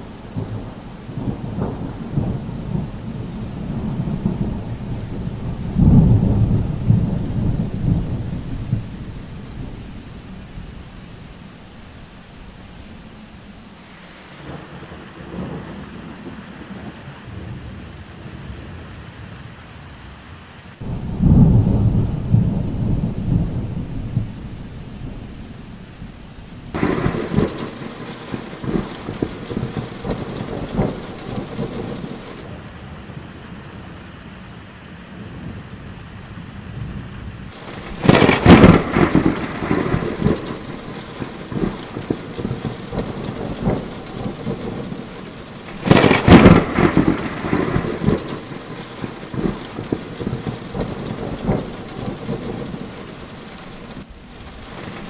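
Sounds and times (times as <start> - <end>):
thunder cracking and rumbling: 0.0 - 10.8, 20.8 - 32.7, 36.7 - 55.0
steady rain: 0.0 - 55.0.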